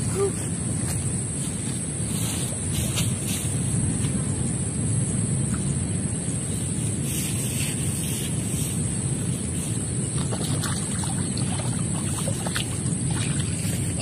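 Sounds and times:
high-pitched hiss: 0.0 - 10.2
wind buffeting microphone: 0.0 - 14.0.

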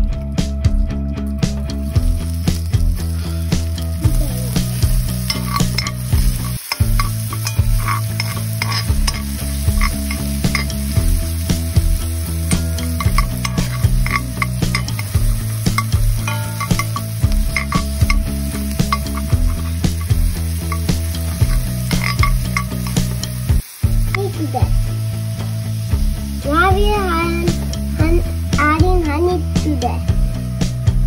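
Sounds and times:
onion and garlic sizzling in fat: 1.4 - 30.8
spoon scraping and tapping pan: 5.1 - 11.1, 12.5 - 23.4.

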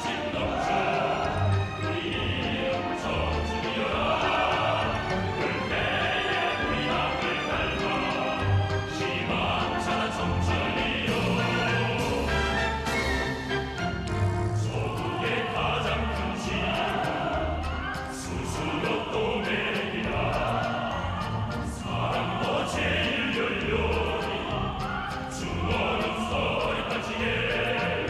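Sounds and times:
instrumental accompaniment: 0.0 - 22.6
choir singing: 0.0 - 28.0.

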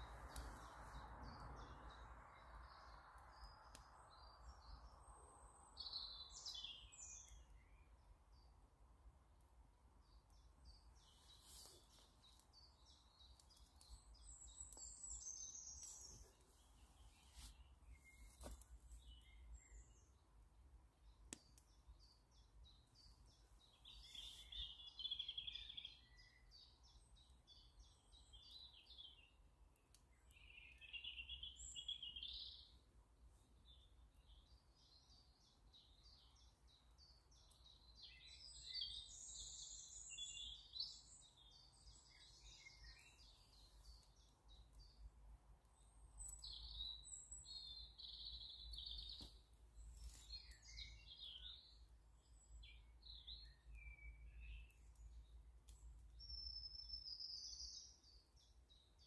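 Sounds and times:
birds chirping and warbling: 0.0 - 8.4, 10.0 - 20.3, 21.1 - 29.4, 33.6 - 45.1, 45.7 - 59.0.

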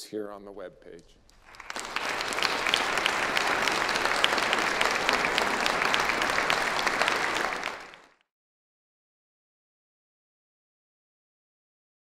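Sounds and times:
audience applauding: 1.4 - 8.2.

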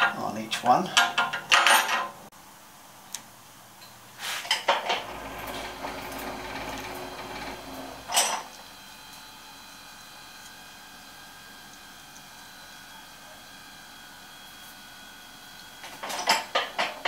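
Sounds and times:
metal tools clinking and rattling: 0.0 - 2.2, 4.5 - 8.5, 15.8 - 17.0.

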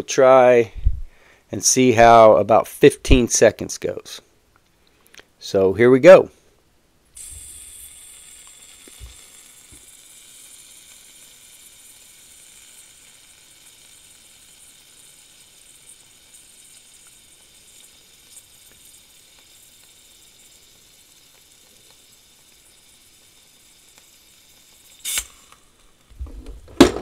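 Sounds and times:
butane gas hissing: 7.1 - 27.0.

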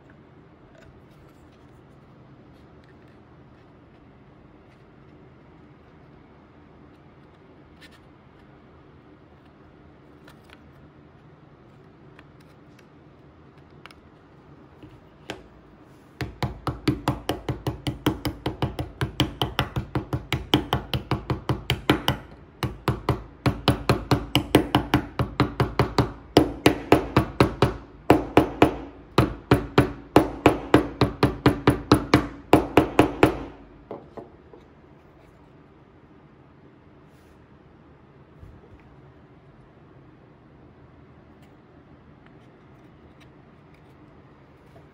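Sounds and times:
mallet knocking wooden pieces: 16.2 - 34.4.

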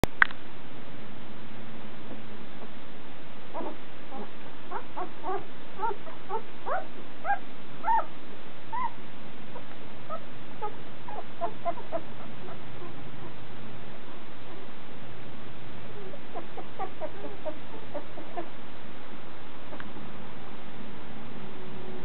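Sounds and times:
puppy squeaking and whimpering: 3.6 - 8.1, 8.7 - 9.0, 9.6 - 13.4, 16.0 - 18.5.

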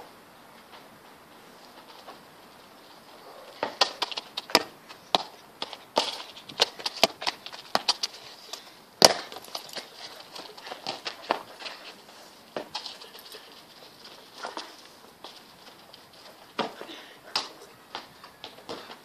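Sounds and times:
football being kicked and bounced: 3.5 - 13.1, 13.7 - 19.0.

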